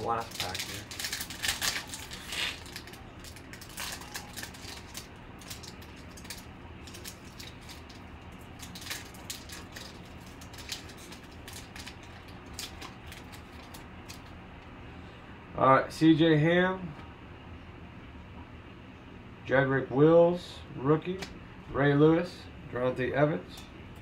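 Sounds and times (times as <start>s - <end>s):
foil wrapper crinkling: 0.0s - 14.3s
low steady hum: 0.0s - 24.0s.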